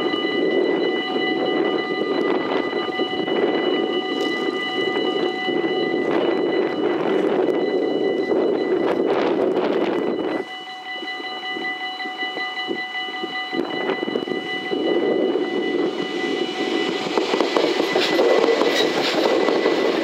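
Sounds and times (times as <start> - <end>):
level-crossing warning bells: 0.0 - 20.0
train rumble: 0.0 - 20.0
rushing noise: 13.6 - 20.0
rail clatter: 15.7 - 20.0.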